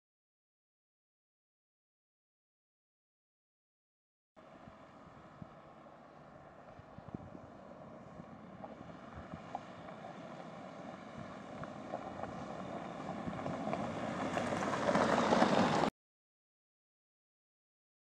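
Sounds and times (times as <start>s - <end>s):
car engine and tyre noise: 4.4s - 15.9s
stones clicking under tyres: 8.6s - 15.9s.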